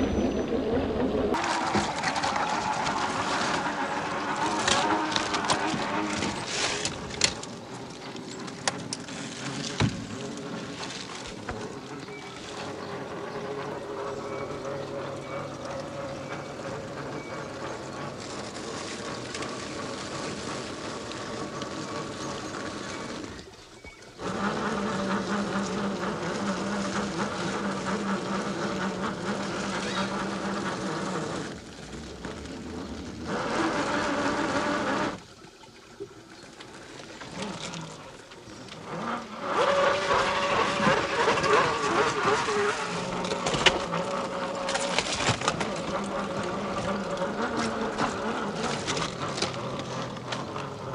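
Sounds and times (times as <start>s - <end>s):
rc truck motor whine: 12.2s - 35.2s.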